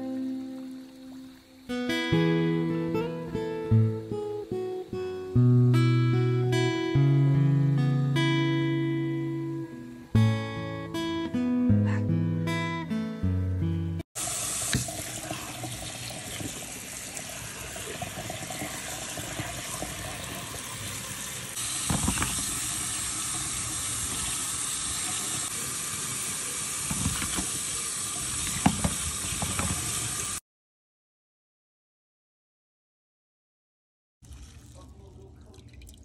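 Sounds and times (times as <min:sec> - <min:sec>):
tap water running into colander: 0:14.2 - 0:30.4, 0:34.2 - 0:36.0.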